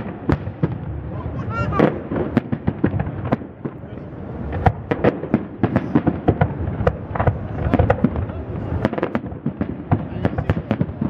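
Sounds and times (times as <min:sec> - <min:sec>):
distant fireworks bursting: 0:00.0 - 0:11.0.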